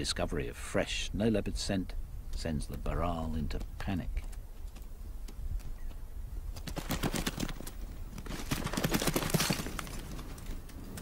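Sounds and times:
hooves clattering on rock: 2.4 - 11.0.

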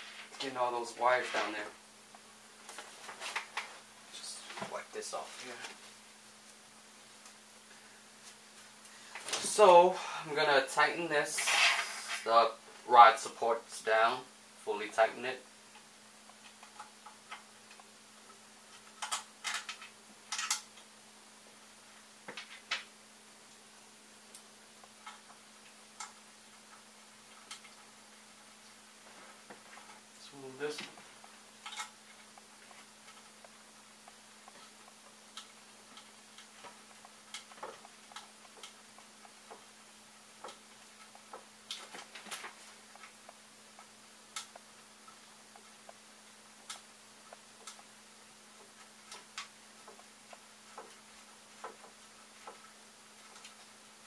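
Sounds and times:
faint steady hum: 0.0 - 54.0
clicks and rustles of handling parts: 15.8 - 20.9, 29.0 - 39.8, 48.6 - 53.8.

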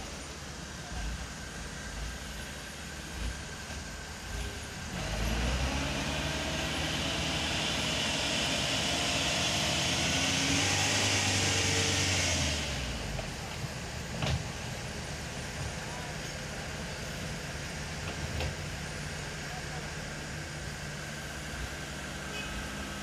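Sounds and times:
diesel engine revving: 1.3 - 23.0.

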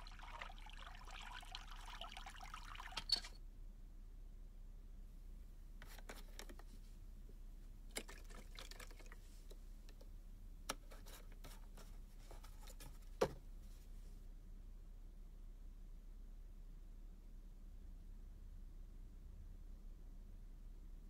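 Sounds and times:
faint clicks and knocks: 7.9 - 13.4.

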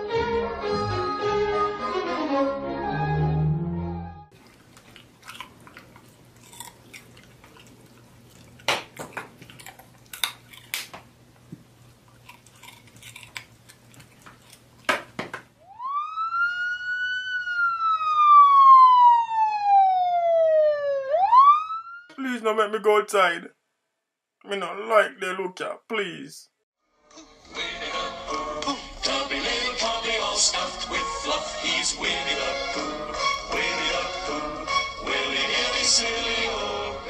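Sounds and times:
music: 0.0 - 4.3, 26.8 - 37.0
siren wailing: 15.6 - 22.2.

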